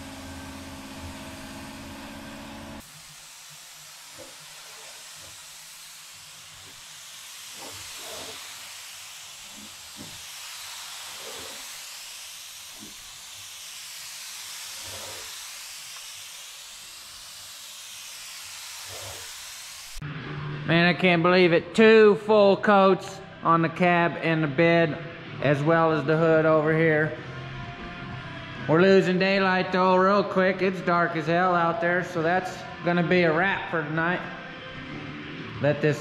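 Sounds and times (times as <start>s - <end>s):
spray gun hissing: 0.0s - 20.0s.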